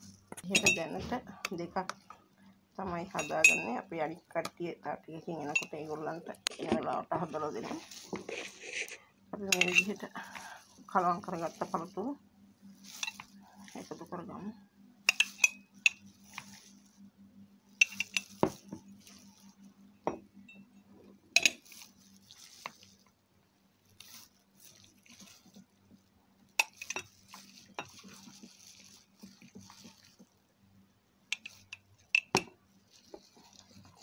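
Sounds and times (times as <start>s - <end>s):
spoon scraping bowl: 0.3s - 1.6s, 3.1s - 3.8s, 5.2s - 12.0s, 12.7s - 14.5s, 15.1s - 16.9s, 17.8s - 19.6s, 21.4s - 23.1s, 23.9s - 25.7s, 26.6s - 30.3s, 31.3s - 34.0s
spoon clinking against glass: 3.2s - 3.8s, 9.5s - 9.9s, 15.1s - 16.0s, 17.8s - 18.6s, 21.4s - 21.6s.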